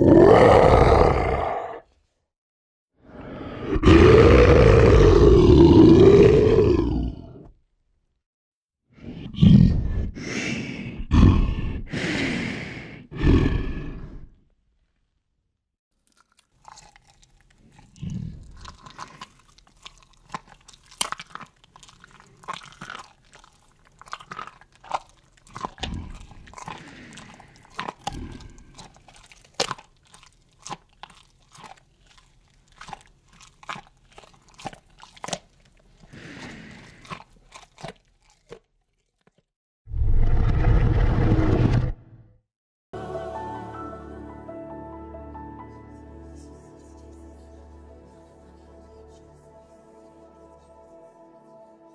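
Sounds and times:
animal growling: 0.0 - 1.9, 3.1 - 7.5, 11.0 - 12.0, 13.0 - 14.4, 21.8 - 30.3, 39.9 - 42.0
animal crunching and chewing: 16.0 - 39.5.

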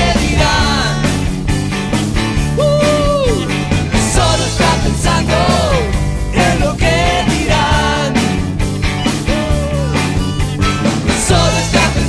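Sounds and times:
rock band playing: 0.0 - 12.0
sliding melody line: 2.6 - 12.0.

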